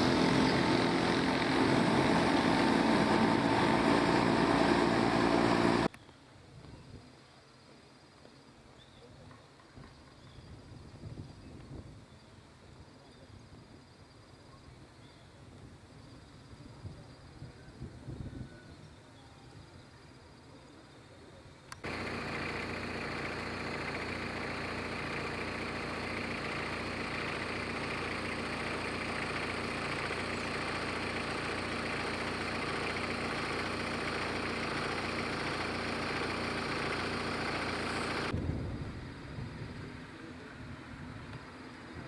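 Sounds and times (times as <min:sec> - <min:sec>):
loud hiss: 0:00.0 - 0:05.9
motor humming: 0:00.0 - 0:05.9, 0:21.8 - 0:38.4.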